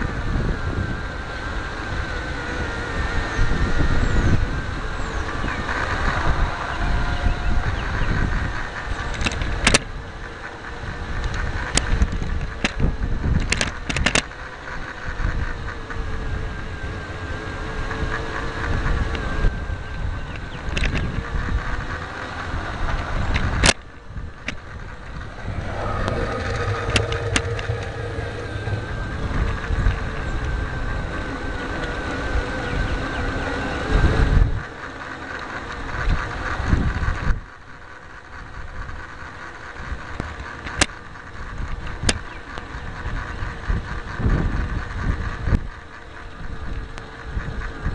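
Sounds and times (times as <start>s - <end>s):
small electric motor whining: 0.0s - 47.9s
wheels clicking over rail joints: 5.7s - 16.1s
low rumble: 21.2s - 33.0s.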